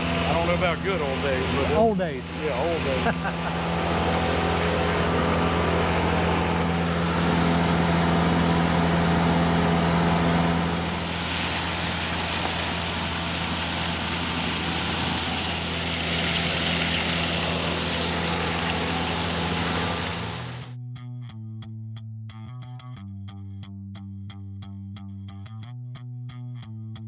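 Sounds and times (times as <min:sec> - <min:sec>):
diesel engine and blower drone: 0:00.0 - 0:20.8
mulch rushing through hose: 0:02.3 - 0:20.7.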